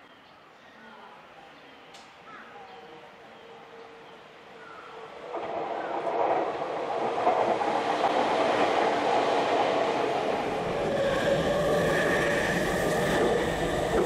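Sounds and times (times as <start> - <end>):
trains running on tracks: 2.9 - 14.0.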